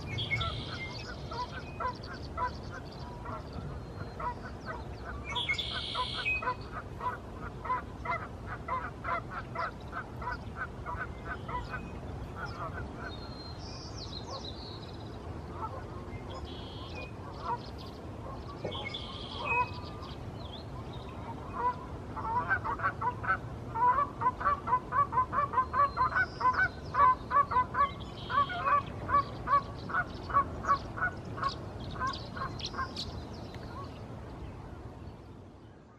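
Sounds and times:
goose honking: 4.2 - 11.8, 21.4 - 32.9.

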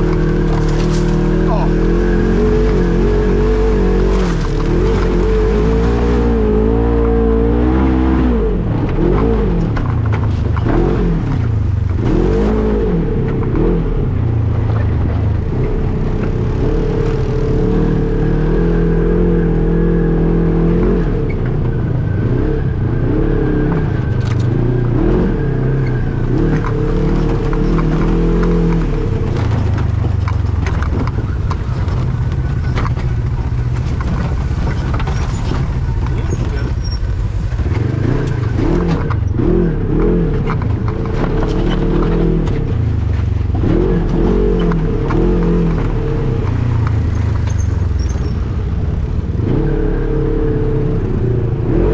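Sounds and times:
off-road vehicle engine revving: 0.0 - 51.9
knocks and rattles: 8.6 - 17.5, 25.6 - 39.4, 40.0 - 48.9.

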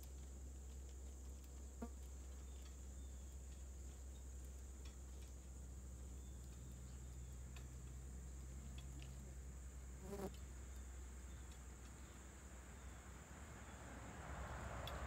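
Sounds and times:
faint ticks: 0.0 - 9.2, 14.8 - 15.0.

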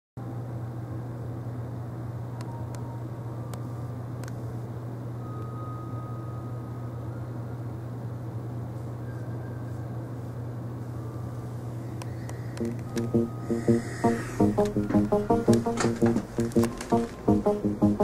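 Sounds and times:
steady low hum: 0.2 - 18.0
background hiss: 12.6 - 18.0.

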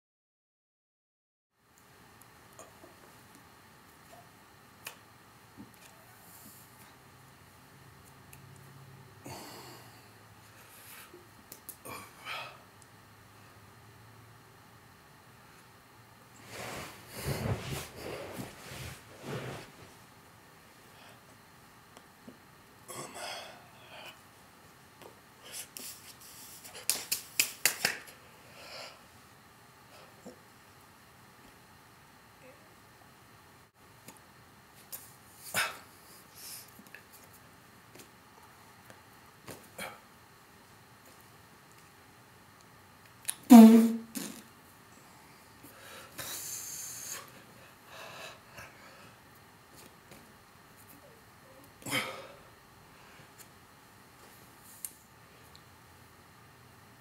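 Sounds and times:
person snapping: 26.8 - 28.1.

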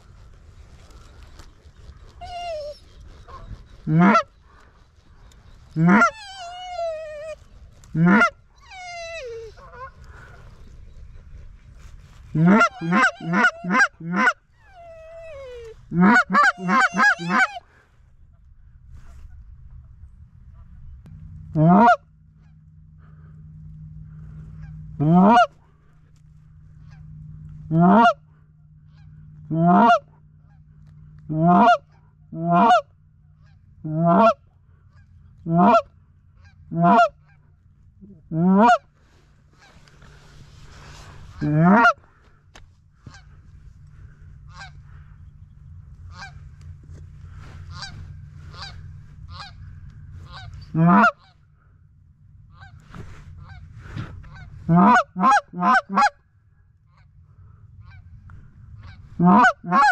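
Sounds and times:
goose honks: 3.3 - 4.3, 5.8 - 7.2, 7.9 - 8.4, 12.3 - 17.6, 21.5 - 23.3, 24.2 - 25.7, 26.8 - 28.2, 28.8 - 30.7, 31.3 - 40.2, 41.0 - 42.2, 44.1 - 45.2, 46.0 - 51.4, 52.5 - 56.2, 57.7 - 59.9.

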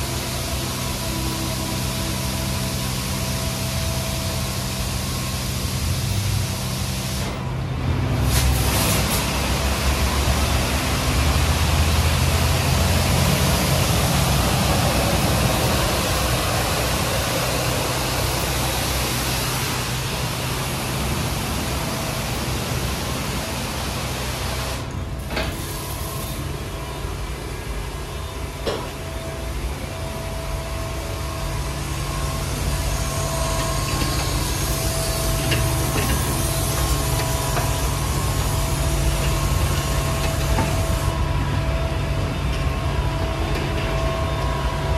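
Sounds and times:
water spraying: 0.0 - 7.4, 8.1 - 26.5, 30.9 - 41.2
low machinery hum: 0.0 - 44.9
faint steady whine: 9.5 - 44.9.

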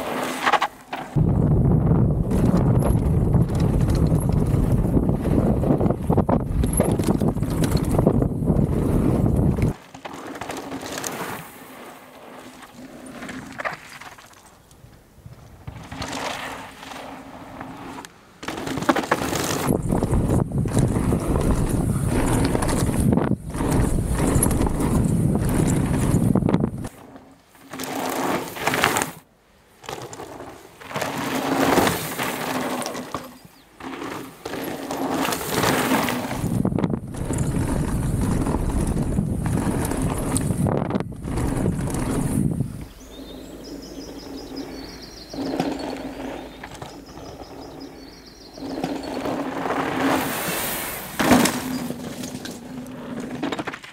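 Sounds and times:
wind buffeting microphone: 1.2 - 9.8, 19.6 - 26.9, 36.3 - 49.1
bike frame and chain rattling: 2.2 - 11.4, 17.7 - 27.0, 29.8 - 53.9
tyres crunching on gravel: 29.9 - 53.9.

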